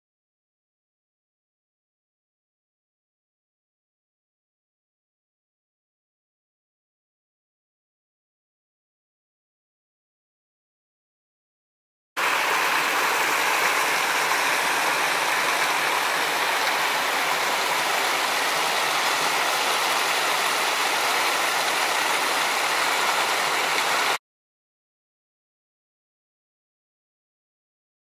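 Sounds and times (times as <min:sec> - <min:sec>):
stream splashing over rocks: 0:12.2 - 0:24.2.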